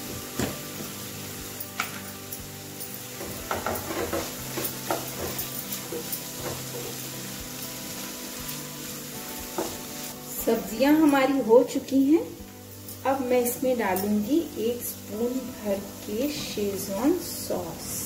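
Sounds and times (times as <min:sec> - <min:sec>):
vegetables sizzling in a frying pan: 0:00.0 - 0:18.0
spatula scraping a pan: 0:03.2 - 0:08.7.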